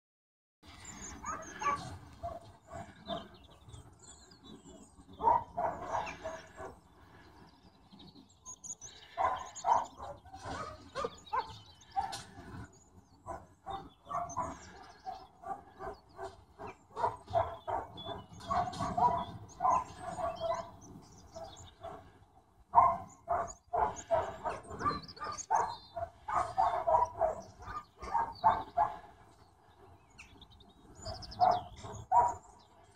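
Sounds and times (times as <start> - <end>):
puppies yapping and barking: 0.8 - 3.3, 5.2 - 6.7, 13.3 - 22.0, 22.8 - 29.0.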